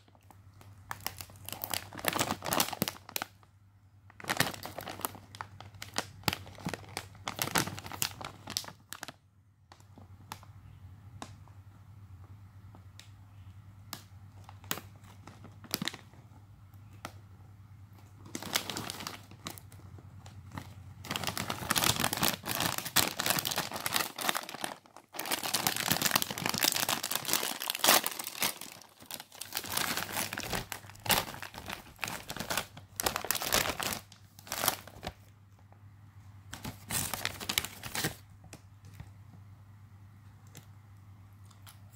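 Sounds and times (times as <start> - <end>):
snack bag crinkling: 0.0 - 3.5, 4.1 - 9.2, 18.0 - 35.3, 36.6 - 38.3
faint low hum: 0.0 - 41.9.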